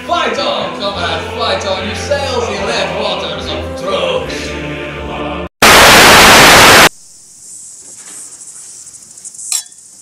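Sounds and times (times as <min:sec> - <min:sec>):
music: 0:00.0 - 0:05.5
white-noise static burst: 0:05.6 - 0:07.2.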